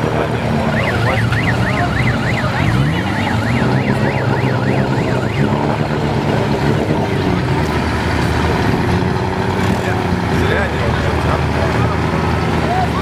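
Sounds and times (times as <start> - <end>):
engine revving: 0.0 - 13.0
off-road engines running: 0.0 - 13.0
electronic siren sweeping: 0.5 - 6.8.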